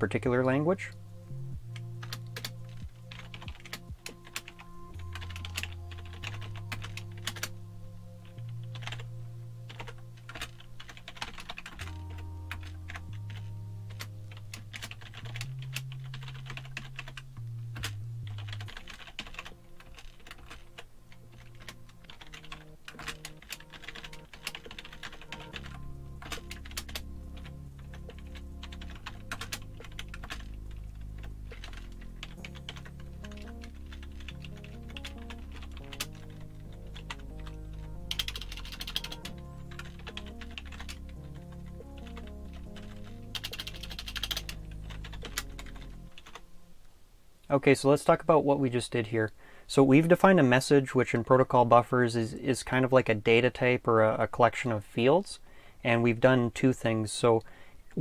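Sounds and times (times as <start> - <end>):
background music with bass line: 0.0 - 46.2
computer keyboard typing: 2.0 - 7.6, 8.3 - 9.1, 9.7 - 17.2, 17.8 - 46.4.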